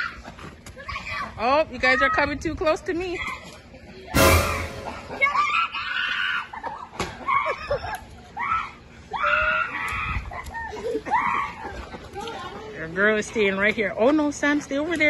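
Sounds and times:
children screaming in play: 5.1s - 12.6s.

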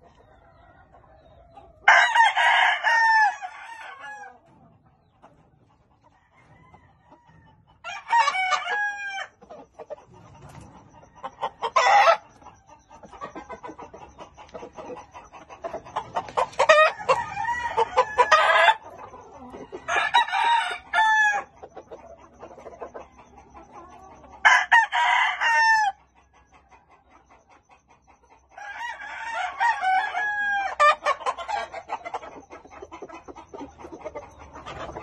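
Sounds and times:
roosters crowing: 0.0s - 4.6s, 6.0s - 9.6s, 10.2s - 13.8s, 14.5s - 22.0s, 24.2s - 26.1s, 28.5s - 35.0s
chickens clucking: 0.0s - 35.0s.

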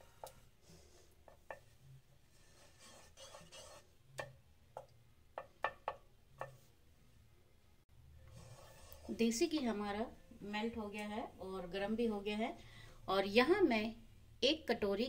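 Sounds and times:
wooden spatula scraping a pan: 0.0s - 4.0s, 8.2s - 9.8s
wooden spatula tapping a pan: 1.2s - 1.7s, 4.2s - 6.7s.

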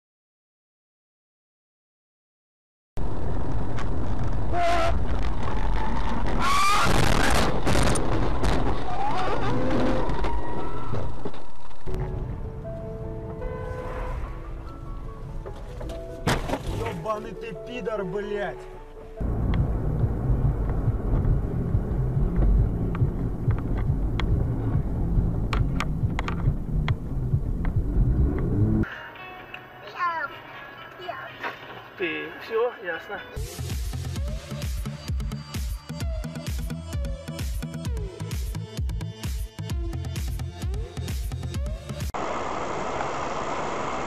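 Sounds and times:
vehicle engine and road rumble: 3.0s - 28.9s.

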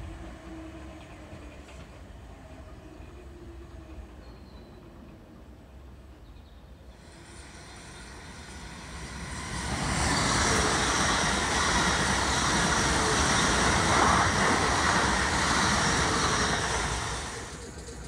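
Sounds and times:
train wheels rushing on rails: 6.9s - 18.0s.

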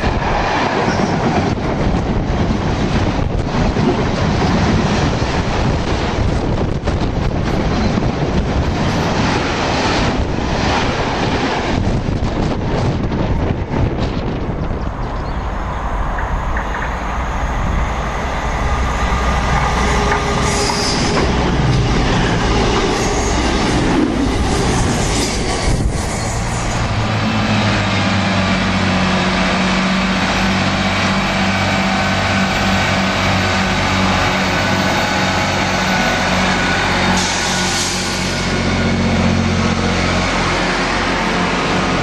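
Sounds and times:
train wheels rumbling on rails: 0.0s - 42.0s
diesel train engine humming: 14.2s - 42.0s.

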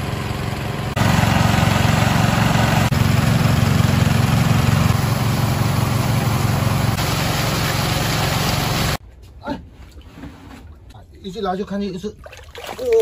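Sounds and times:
petrol water pumps running: 0.0s - 9.0s.

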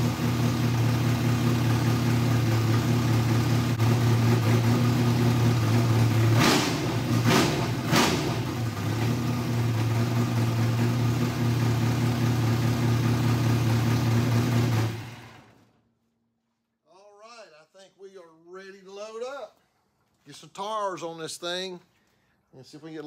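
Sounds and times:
race engine idling and revving: 0.0s - 15.6s.

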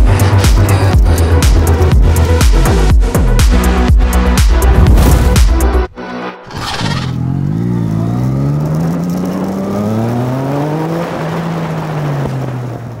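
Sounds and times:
engine accelerating through gears: 6.5s - 13.0s.

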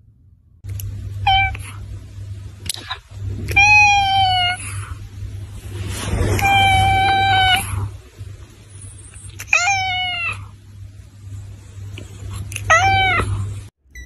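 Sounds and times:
cat meowing: 2.7s - 5.0s, 6.3s - 7.9s, 9.3s - 10.5s, 12.6s - 13.5s.

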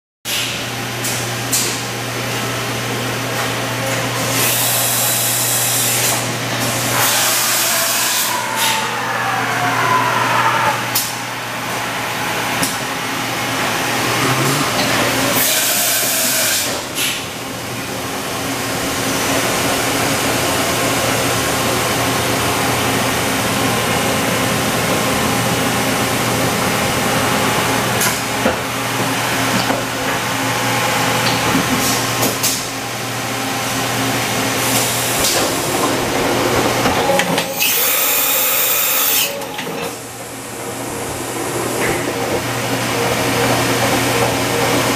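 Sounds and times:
machine steady hum and hiss: 0.3s - 9.3s, 10.9s - 44.9s
loud bursts of hissing air: 4.2s - 8.3s, 13.5s - 17.2s, 37.6s - 39.3s.

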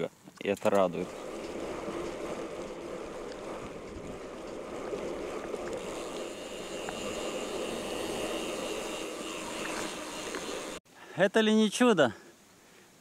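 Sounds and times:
bike rattling clicks: 0.3s - 10.8s
bicycle tyre noise: 0.8s - 10.8s
wind on microphone: 1.0s - 5.8s.

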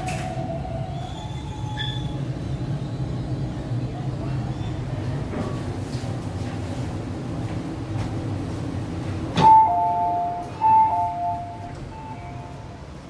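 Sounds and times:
train rumble: 0.0s - 13.0s
train door click: 9.3s - 12.2s
two-note door chime: 9.4s - 12.7s.

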